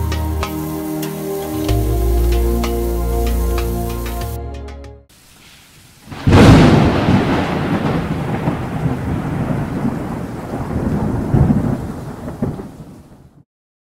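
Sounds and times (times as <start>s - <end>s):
thunder clap and rumble: 6.1s - 13.4s.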